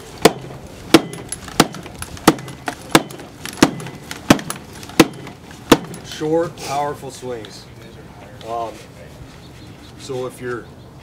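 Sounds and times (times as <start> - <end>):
axe chopping log: 0.2 - 6.0.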